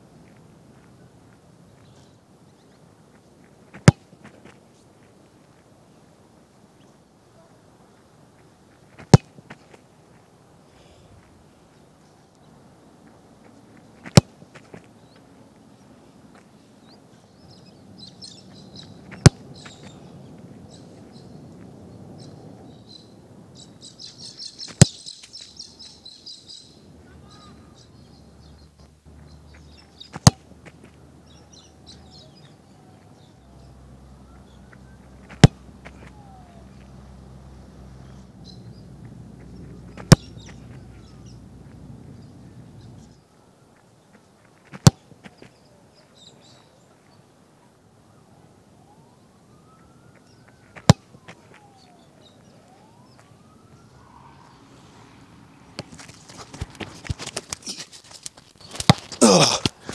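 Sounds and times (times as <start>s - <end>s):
football kicked off the boot: 14.0s - 14.8s, 30.1s - 30.4s, 35.3s - 36.0s
birds chirping: 14.6s - 44.4s, 49.2s - 57.8s.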